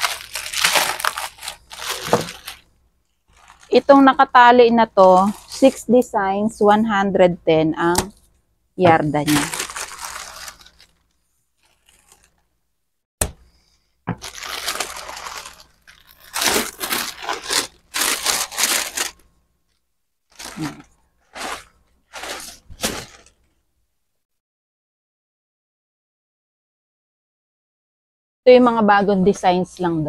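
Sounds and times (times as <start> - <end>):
plastic wrapping crinkling: 0.0 - 6.0, 8.9 - 12.5, 14.1 - 19.3, 20.3 - 23.6.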